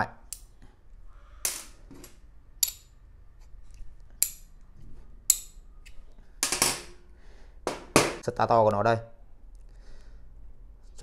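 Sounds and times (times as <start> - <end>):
metal parts clicking and clinking: 1.5 - 3.0.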